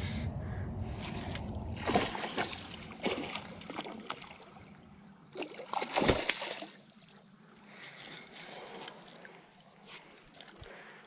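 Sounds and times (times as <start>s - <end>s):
fish thrashing and splashing: 0.9s - 6.9s.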